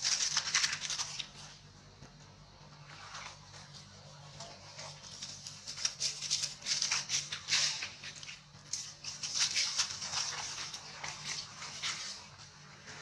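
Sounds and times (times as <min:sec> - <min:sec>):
dry leaves rustling and crackling: 0:00.0 - 0:01.5, 0:04.5 - 0:12.3.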